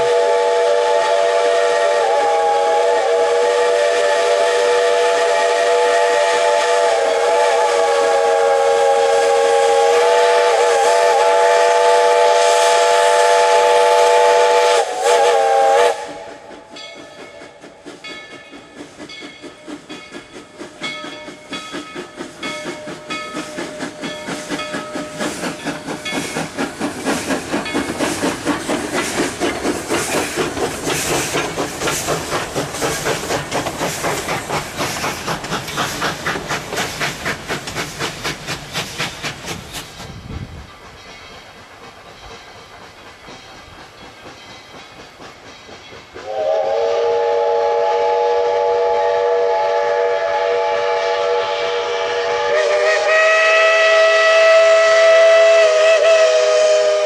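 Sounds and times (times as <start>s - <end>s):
steam whistle chord: 0.0s - 16.7s, 46.2s - 57.0s
steam locomotive exhaust chuffs: 0.0s - 57.0s.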